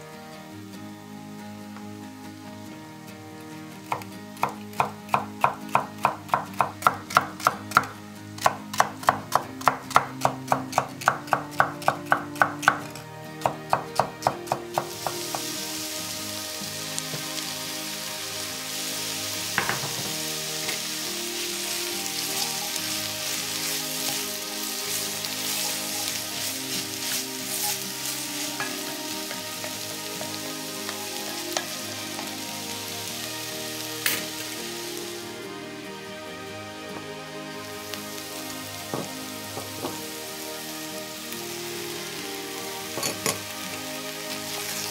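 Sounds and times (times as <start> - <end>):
vegetables sizzling in a pot: 0.0 - 44.9
knock: 19.6 - 20.1.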